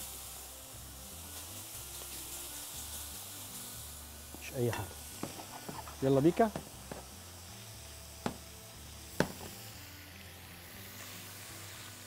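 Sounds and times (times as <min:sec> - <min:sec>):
cookware knocking: 0:06.5 - 0:07.0.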